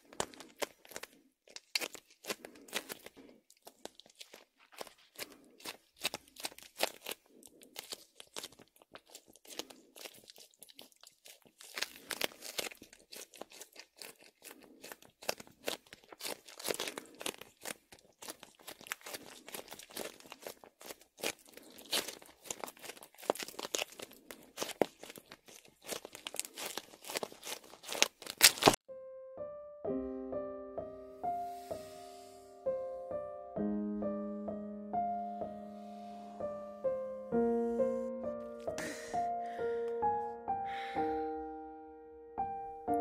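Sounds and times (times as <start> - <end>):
foam crackling and squishing: 0.0 - 28.8
tape crinkling: 0.0 - 28.8, 38.2 - 40.2.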